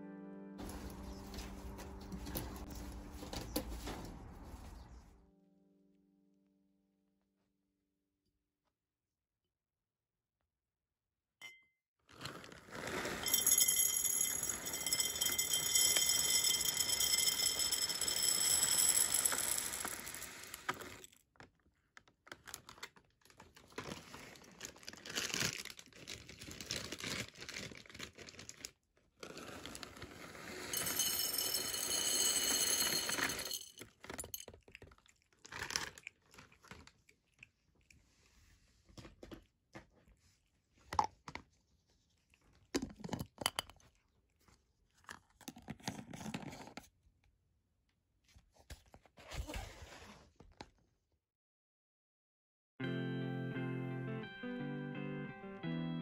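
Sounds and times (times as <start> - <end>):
kibble pouring into glass jar: 12.2 - 21.1, 29.4 - 34.5
kibble clinking: 13.3 - 21.0, 30.8 - 35.0.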